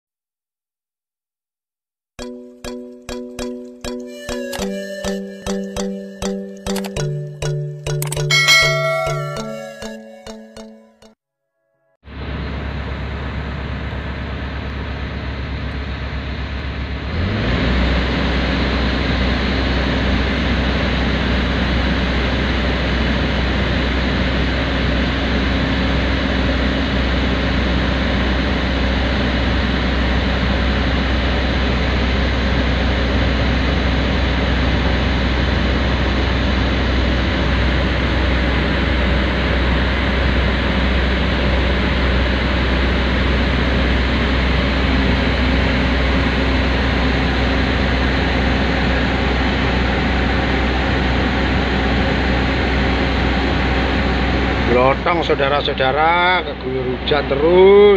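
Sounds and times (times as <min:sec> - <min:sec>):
heavy vehicle engine drone: 0:12.0 - 0:57.9.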